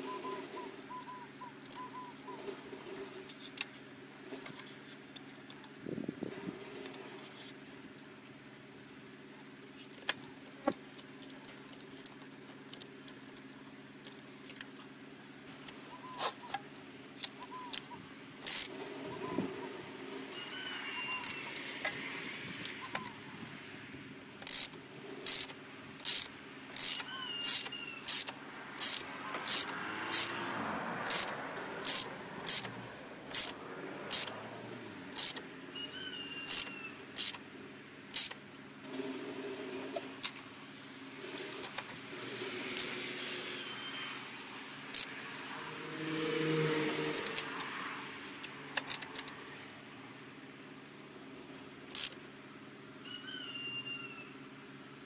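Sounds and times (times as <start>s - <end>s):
ratchet wrench clicking: 17.2s - 18.8s, 21.2s - 21.7s, 24.4s - 30.4s, 31.0s - 34.4s, 35.1s - 35.4s, 36.5s - 37.4s, 38.1s - 38.4s, 41.3s - 43.0s, 44.9s - 45.1s, 47.1s - 47.7s, 48.3s - 49.4s, 51.8s - 52.2s.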